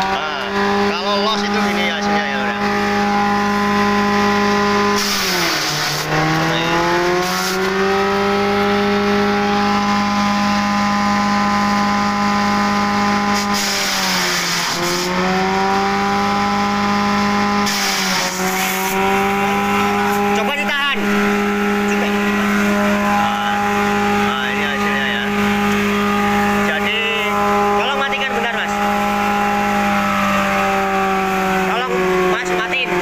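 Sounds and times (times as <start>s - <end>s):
electric motor whine: 0.0s - 33.0s
grass chopping through blades: 4.9s - 8.2s, 17.6s - 24.4s.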